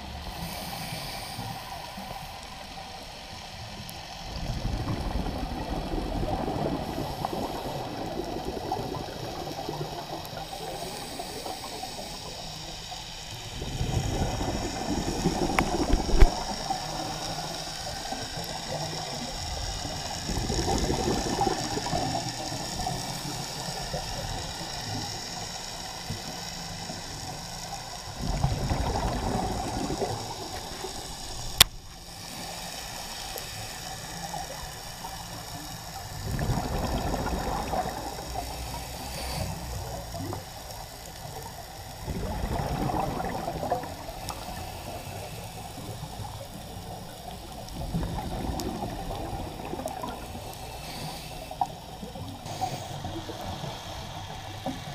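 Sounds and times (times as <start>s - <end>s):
steady hiss: 0.0s - 54.9s
exhaled bubbles underwater: 4.2s - 12.8s, 13.4s - 25.2s, 26.8s - 32.0s, 36.0s - 39.1s, 39.8s - 50.7s.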